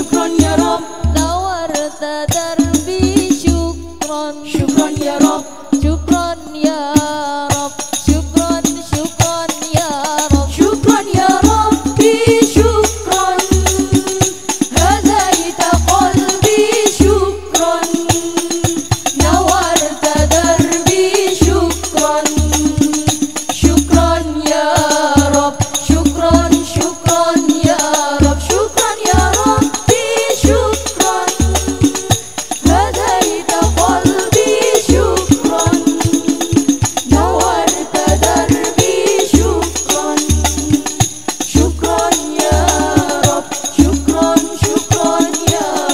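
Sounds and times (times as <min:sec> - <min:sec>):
hand-beaten frame drums: 0:00.0 - 0:45.9
women singing together: 0:00.0 - 0:45.9.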